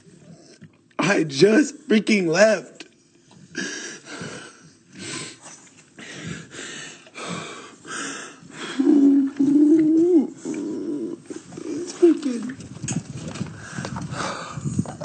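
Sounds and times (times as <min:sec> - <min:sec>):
man gasping and sobbing: 0:03.3 - 0:12.6
man wailing: 0:08.8 - 0:11.2.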